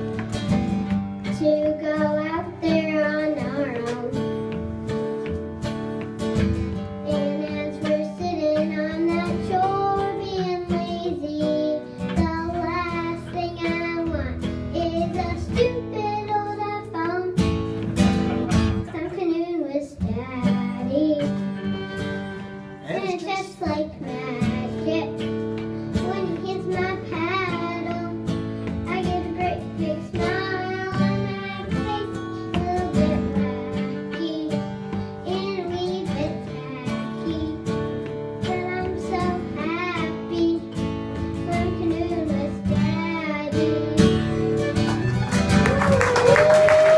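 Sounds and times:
strummed acoustic guitar: 0:00.0 - 0:45.9
girl singing: 0:01.2 - 0:04.6, 0:06.8 - 0:17.7, 0:18.7 - 0:44.8
bowed fiddle: 0:20.5 - 0:23.3.

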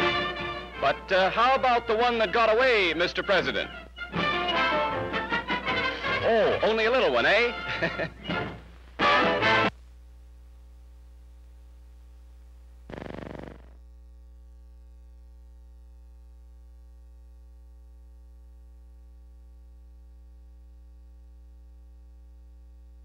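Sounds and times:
electrical mains hum: 0:05.2 - 0:23.0.

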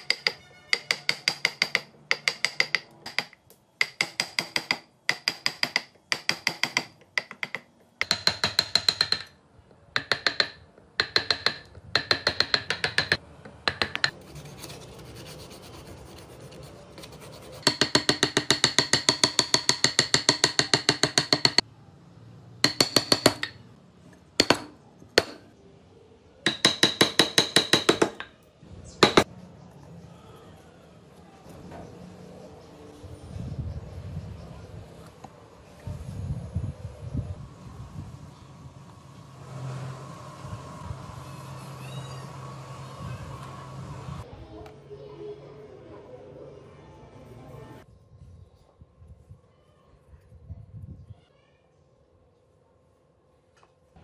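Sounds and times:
chisel scraping wood: 0:13.8 - 0:19.8
sandpaper rubbing wood: 0:14.2 - 0:17.9.

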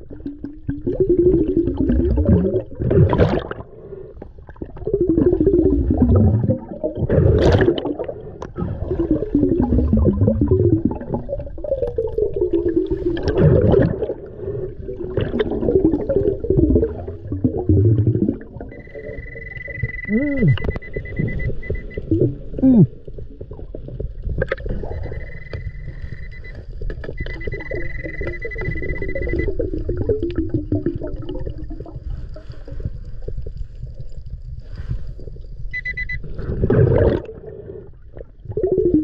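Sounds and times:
underwater gurgling: 0:00.0 - 0:39.0
metal detector high beep: 0:18.7 - 0:22.0, 0:24.8 - 0:26.6, 0:27.2 - 0:29.5, 0:35.7 - 0:36.2.

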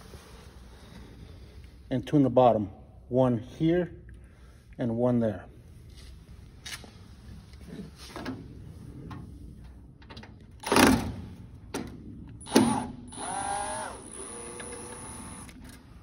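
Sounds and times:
cordless drill whining: 0:12.5 - 0:15.8.

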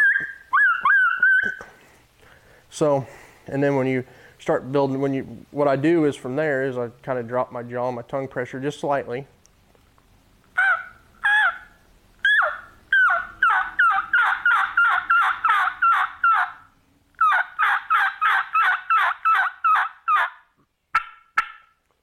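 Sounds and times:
turkey call yelps: 0:00.0 - 0:01.8, 0:10.5 - 0:21.8.

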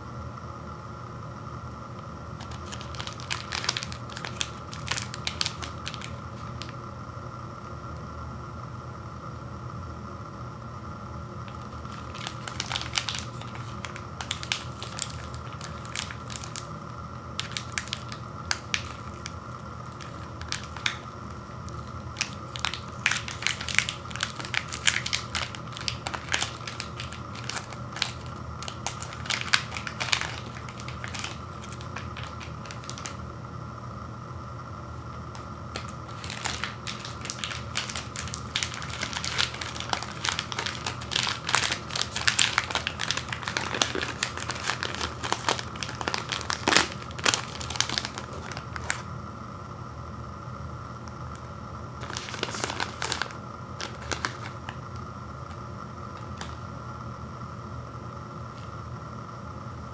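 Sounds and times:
foil wrapper crinkling: 0:02.4 - 0:06.8, 0:11.4 - 0:33.2, 0:35.3 - 0:49.1, 0:52.0 - 0:54.9, 0:56.1 - 0:56.7.

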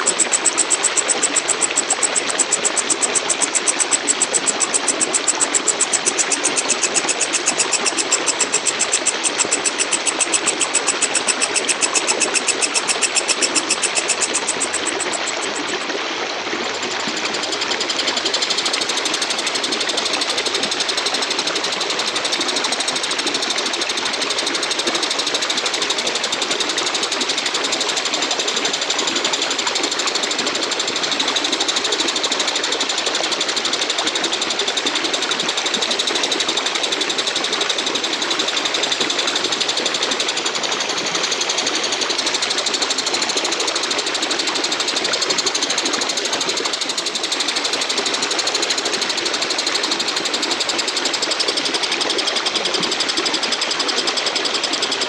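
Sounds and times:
katydid buzzing chirr: 0:00.0 - 0:15.8, 0:16.7 - 0:32.6.

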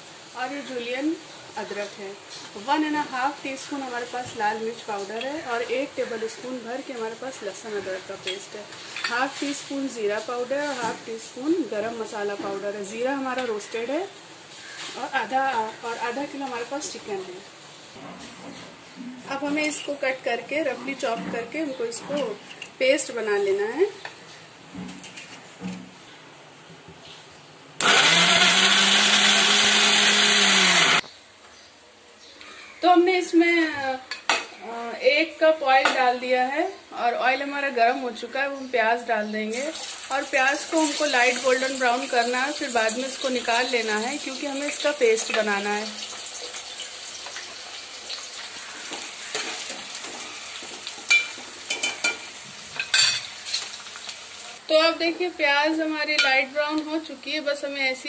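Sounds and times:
onions sizzling in oil: 0:00.0 - 0:18.0, 0:39.0 - 0:58.0
mixer grinder running: 0:27.8 - 0:31.0.

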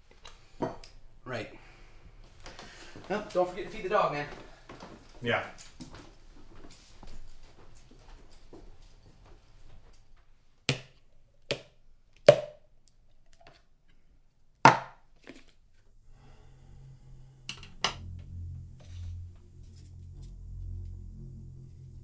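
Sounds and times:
ambient music drone: 0:16.0 - 0:22.0.

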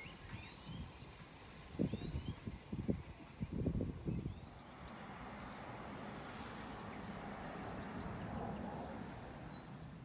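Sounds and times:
birds chirping: 0:04.1 - 0:10.0.

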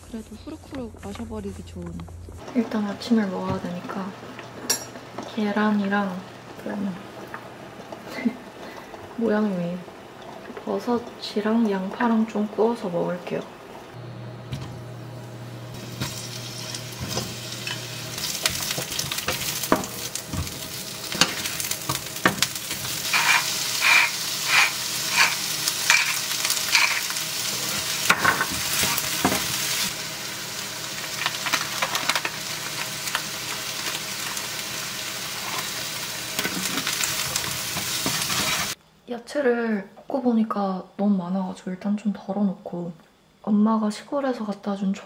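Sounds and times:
food sizzling in a frying pan: 0:02.4 - 0:38.8
wooden spatula scraping a pan: 0:17.0 - 0:29.6, 0:36.4 - 0:38.8
spice grinder twisting: 0:23.0 - 0:27.1.

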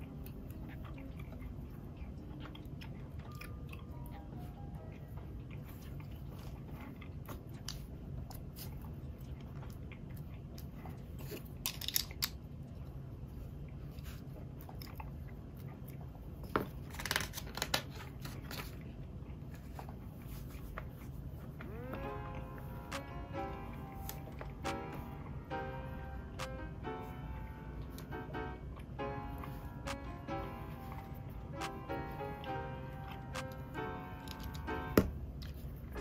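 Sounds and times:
plastic blocks clicking: 0:11.6 - 0:12.4
steady low hum: 0:18.0 - 0:36.0.

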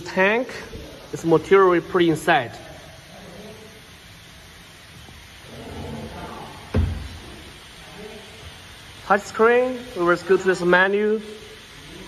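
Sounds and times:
heavy thump of metal set down: 0:06.7 - 0:07.2.

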